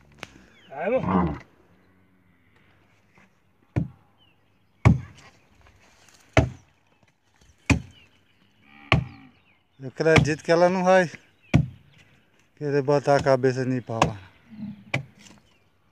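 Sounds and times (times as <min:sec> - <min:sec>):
axe chopping wood: 0:03.7 - 0:04.0, 0:04.8 - 0:05.2, 0:06.4 - 0:06.6, 0:07.7 - 0:07.9, 0:10.1 - 0:10.4, 0:11.5 - 0:11.8, 0:14.9 - 0:15.1.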